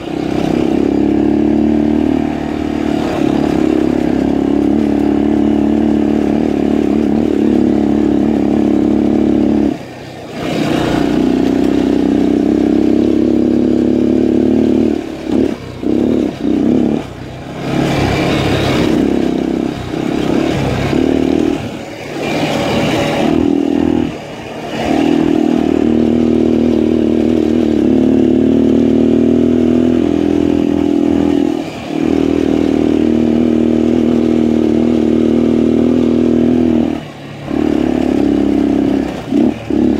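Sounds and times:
motorcycle engine running: 0:00.0 - 0:39.9
rushing noise: 0:14.9 - 0:39.9.

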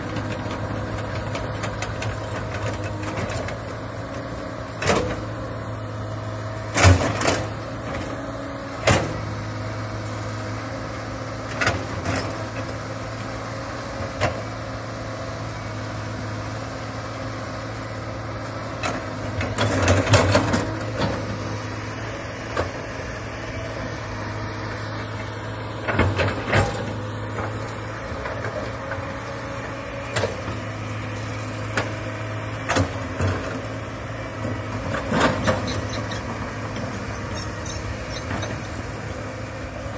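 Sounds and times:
excavator diesel engine droning: 0:00.0 - 0:39.9
excavator bucket knocking and clanking: 0:18.8 - 0:21.3, 0:34.9 - 0:38.6.

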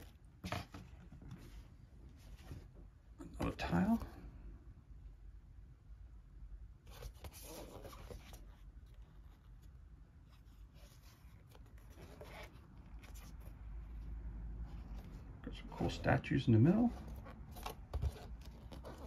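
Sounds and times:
cardboard rubbing and scraping: 0:06.9 - 0:09.7, 0:10.3 - 0:14.0, 0:16.8 - 0:19.0.

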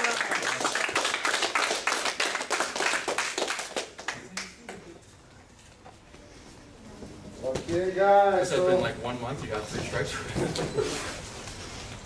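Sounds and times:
group applauding: 0:00.0 - 0:05.0.

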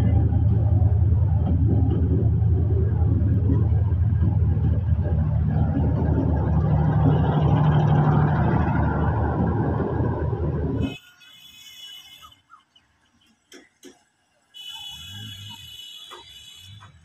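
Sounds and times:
low hum: 0:00.0 - 0:10.8
train wheels rumbling on rails: 0:00.0 - 0:10.9.

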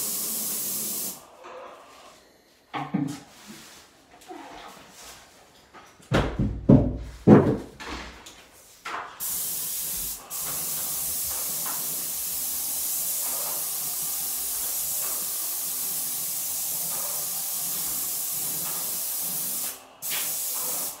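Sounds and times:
spray gun hissing: 0:00.0 - 0:01.2, 0:09.2 - 0:21.0
wooden knocks and thumps: 0:06.1 - 0:08.1.

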